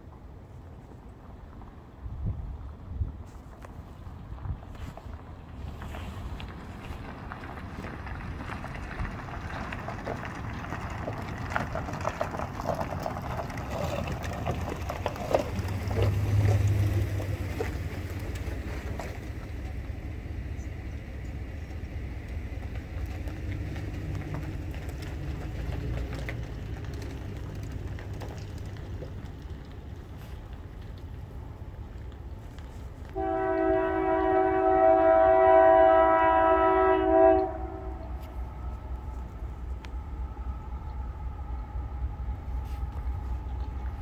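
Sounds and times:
locomotive rumble: 0.0s - 44.0s
wind noise on microphone: 1.4s - 16.0s.

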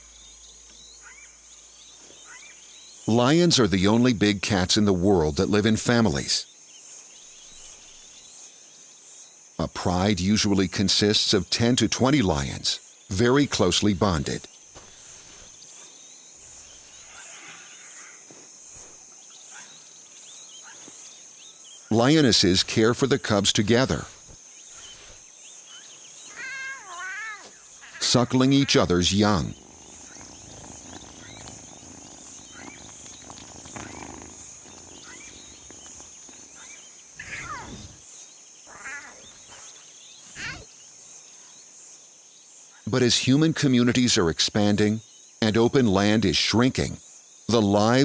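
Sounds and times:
faint bird chirps: 0.0s - 3.3s, 6.4s - 9.4s, 12.8s - 22.1s, 23.7s - 42.9s
insects trilling: 0.0s - 48.0s
lion cubs mewing: 26.3s - 38.0s, 38.6s - 40.7s.

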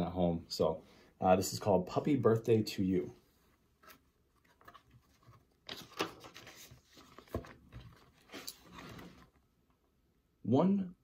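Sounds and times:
book pages rustling: 3.5s - 9.4s.

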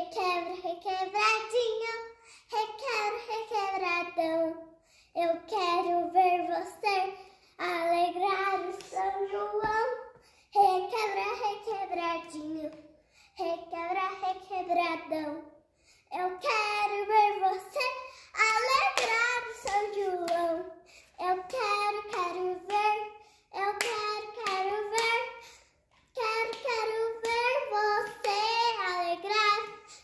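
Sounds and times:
girl singing unaccompanied: 0.0s - 30.0s
hands clapping: 18.4s - 20.5s, 21.5s - 22.9s, 23.8s - 25.2s, 26.4s - 27.6s, 28.2s - 28.5s.

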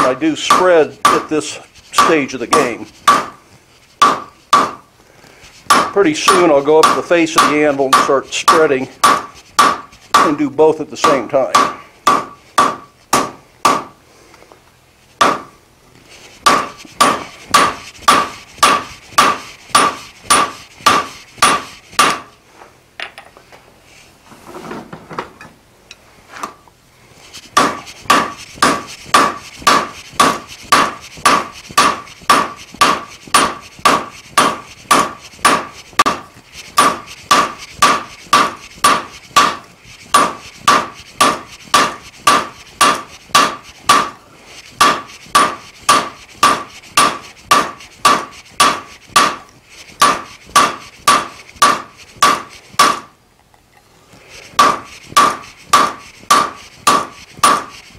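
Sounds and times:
hammer striking metal on anvil: 0.4s - 3.4s, 4.0s - 4.8s, 5.7s - 10.4s, 11.0s - 13.9s, 15.2s - 15.5s, 16.4s - 22.3s, 27.6s - 44.2s, 44.8s - 49.4s, 50.0s - 53.1s, 54.6s - 57.7s.

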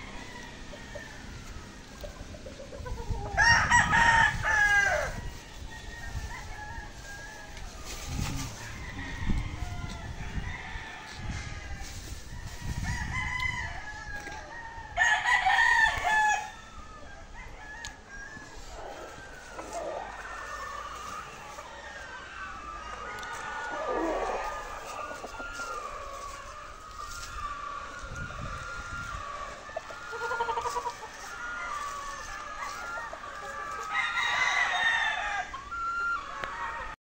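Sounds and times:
rooster crowing: 0.0s - 2.1s, 3.1s - 37.0s
roosters clucking: 0.0s - 37.0s.

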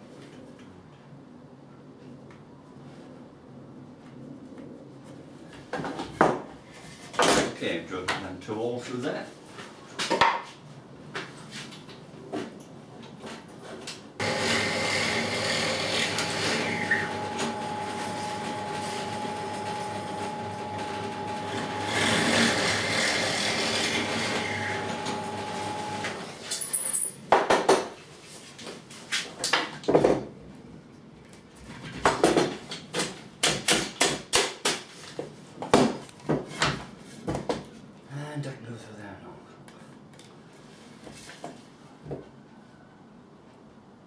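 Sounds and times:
drill press motor whining: 14.2s - 26.2s.

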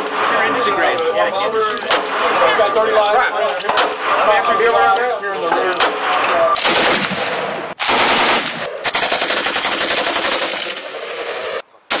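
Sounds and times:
automatic rifle gunfire: 6.6s - 11.2s.

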